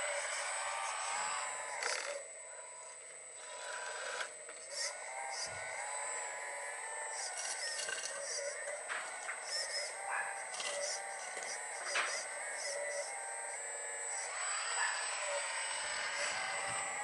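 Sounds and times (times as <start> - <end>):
hydraulic pump whining: 13.6 - 17.0.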